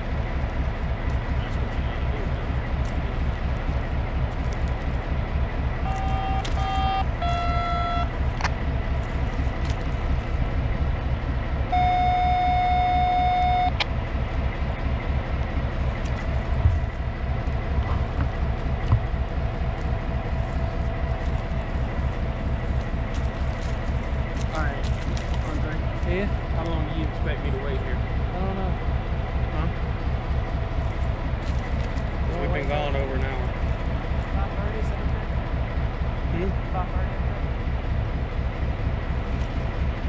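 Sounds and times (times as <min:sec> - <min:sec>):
diesel engine throbbing: 0:00.0 - 0:40.0
horn toots: 0:05.8 - 0:08.2, 0:11.7 - 0:13.8.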